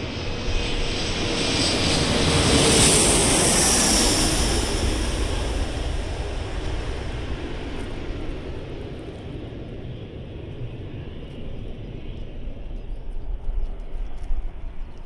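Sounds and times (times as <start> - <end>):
jet engine rumble: 0.0 - 15.0.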